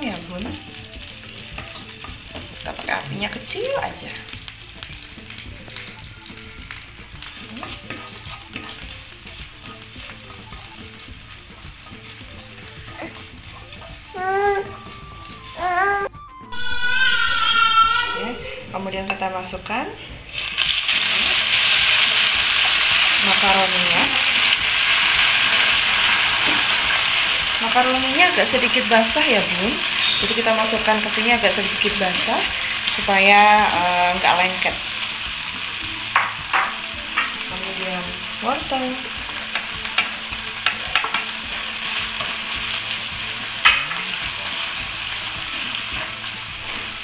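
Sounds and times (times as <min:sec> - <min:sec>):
pasta sizzling in frying pan: 0:00.0 - 0:17.7, 0:20.3 - 0:47.0
spatula tapping and scraping pan: 0:06.7 - 0:10.4, 0:39.5 - 0:41.4.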